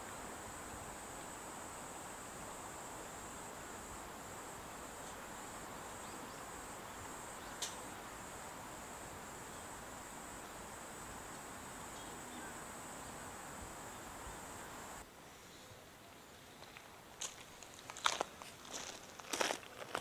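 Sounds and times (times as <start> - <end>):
insect chorus: 0.0 - 20.0
soft hiss: 0.0 - 20.0
sharp click: 7.6 - 7.8.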